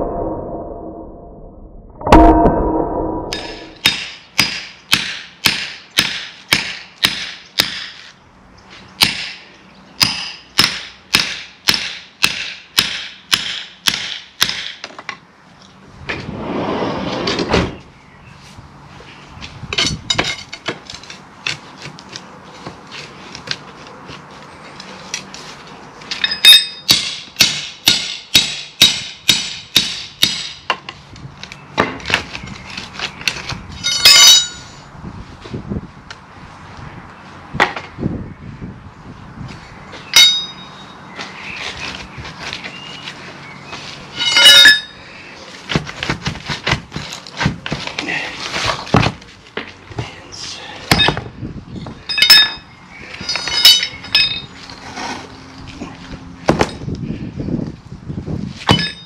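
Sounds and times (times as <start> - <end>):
hammer striking steel chisel: 3.3 - 7.9, 40.2 - 40.7.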